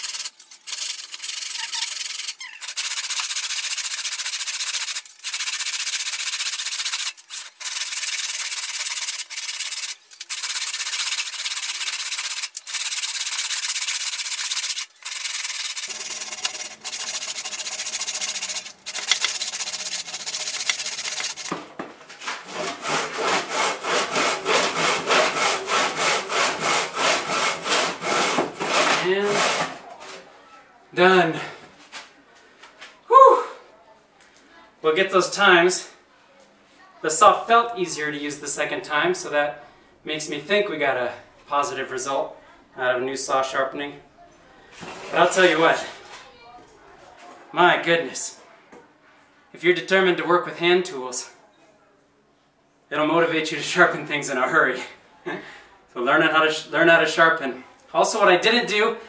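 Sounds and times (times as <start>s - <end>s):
hand saw rasping through wood: 1.1s - 21.5s, 22.4s - 29.8s.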